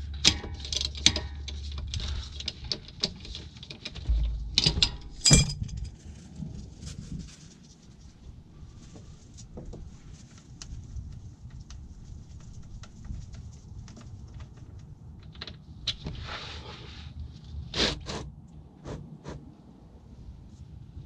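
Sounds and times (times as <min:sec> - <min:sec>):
drain plug turned by hand: 0:00.0 - 0:06.0.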